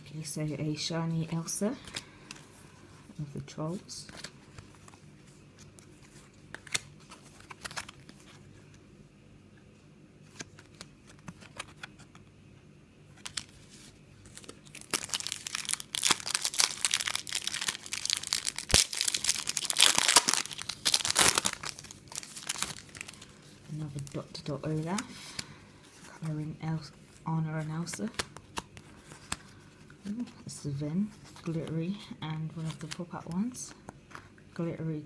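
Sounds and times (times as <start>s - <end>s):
cards being shuffled: 4.0s - 8.7s, 10.2s - 12.2s, 13.1s - 26.5s, 27.6s - 30.5s, 32.6s - 33.1s
foil packet crinkling: 13.2s - 26.2s.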